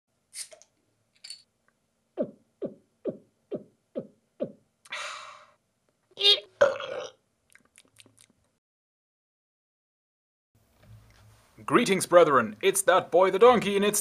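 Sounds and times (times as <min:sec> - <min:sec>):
quick gulps dropping in pitch: 0:02.2 - 0:04.6.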